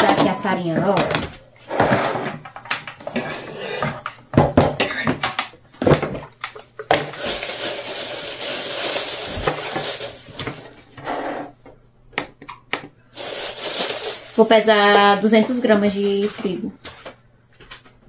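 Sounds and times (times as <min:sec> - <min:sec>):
plastic bag crinkling: 0:06.9 - 0:10.8, 0:13.1 - 0:16.6.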